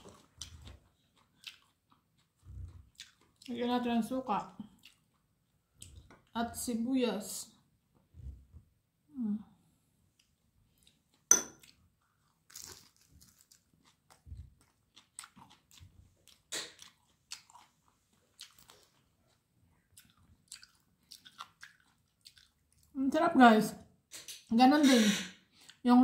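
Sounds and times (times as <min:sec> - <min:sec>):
person chewing crunchy food: 0:00.0 - 0:03.5, 0:04.6 - 0:06.4, 0:10.1 - 0:23.0.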